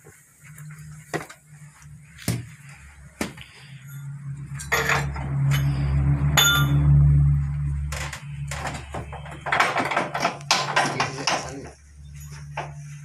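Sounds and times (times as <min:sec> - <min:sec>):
metal knocks and clinks: 0:04.5 - 0:05.7, 0:06.3 - 0:07.0, 0:07.8 - 0:12.8.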